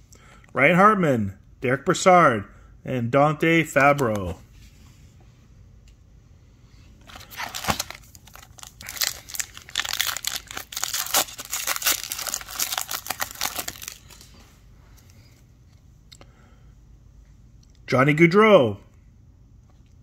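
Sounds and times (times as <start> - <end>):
foil wrapper crinkling and tearing: 7.1 - 14.3.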